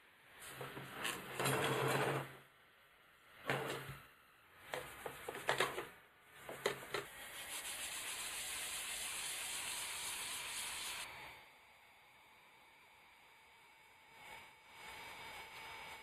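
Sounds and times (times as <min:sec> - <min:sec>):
sponge scrubbing metal: 0:04.7 - 0:05.8, 0:06.5 - 0:11.0
steady hiss: 0:06.4 - 0:16.0.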